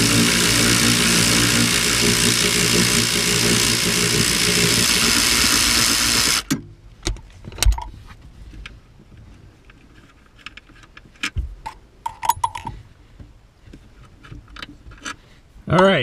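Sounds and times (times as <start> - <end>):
metallic clicks and rattles: 9.7 - 12.8.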